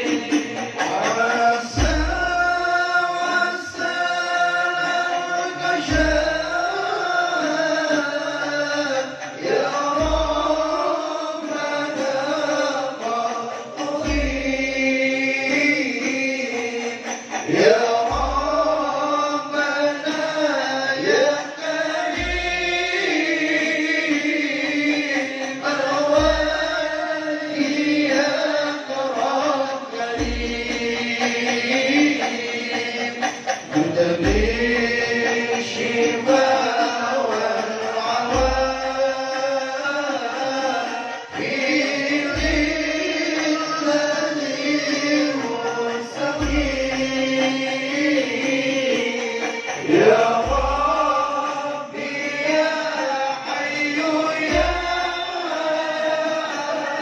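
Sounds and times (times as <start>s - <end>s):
men chanting over loudspeaker: 0.0s - 57.0s.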